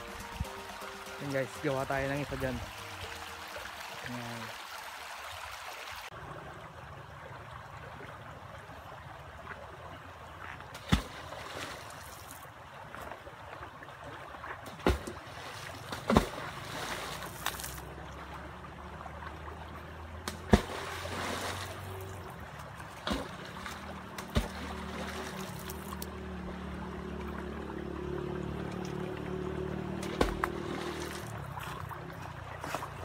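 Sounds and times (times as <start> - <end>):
river flowing: 0.0 - 33.0
heavy object splashing: 10.7 - 12.3, 14.7 - 17.8, 20.2 - 22.2, 22.9 - 26.0, 29.9 - 32.0.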